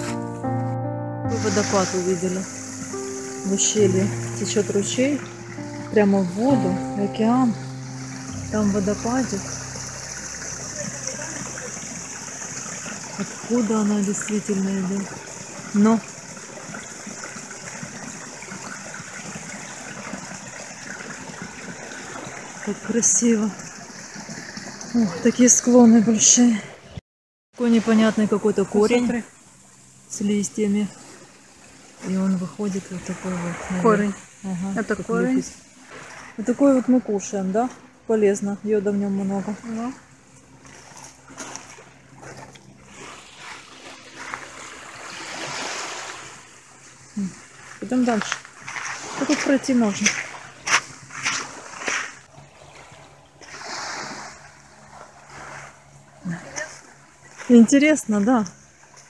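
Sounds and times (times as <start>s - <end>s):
small waterfall rushing: 7.8s - 25.6s
water splashing on pebble beach: 40.6s - 52.3s.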